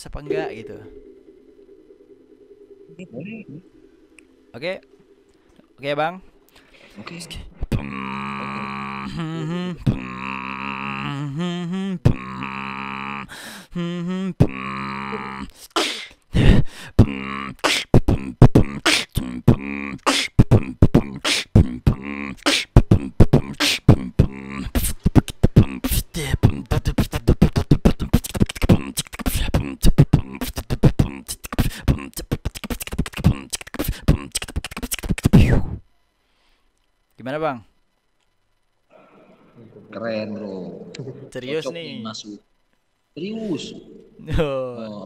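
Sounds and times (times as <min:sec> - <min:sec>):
vocal beatboxing: 0:07.2 - 0:35.8.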